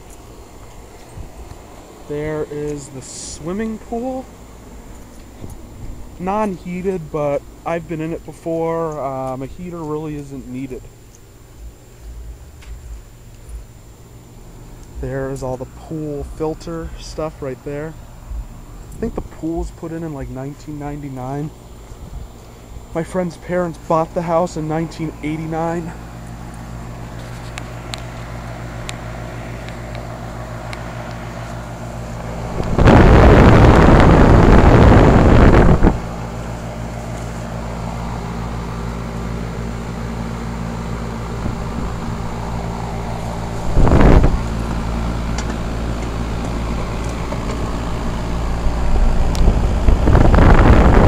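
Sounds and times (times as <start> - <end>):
air conditioner humming: 0.0 - 51.0
wind buffeting microphone: 21.9 - 22.4, 32.2 - 36.2, 41.4 - 44.9, 48.4 - 51.0.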